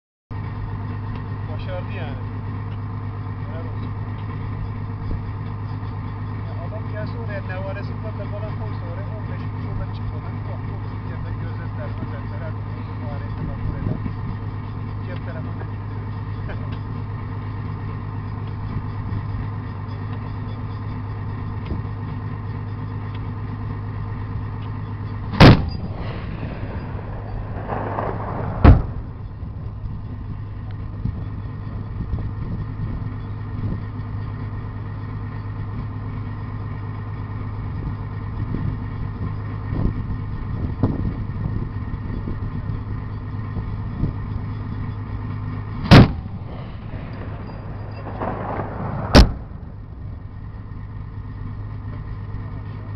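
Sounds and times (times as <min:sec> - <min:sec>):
armoured vehicle engine idling: 0:00.3 - 0:52.9
autocannon firing: 0:25.3 - 0:29.5, 0:45.8 - 0:50.7.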